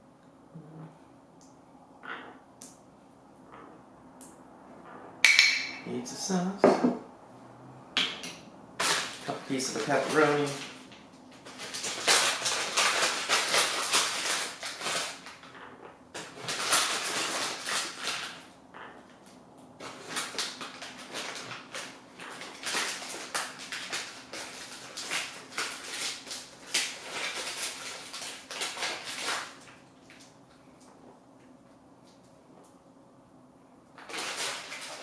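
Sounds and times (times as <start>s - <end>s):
plastic packaging crinkling: 8.8s - 15.6s, 16.2s - 30.3s, 34.0s - 35.0s.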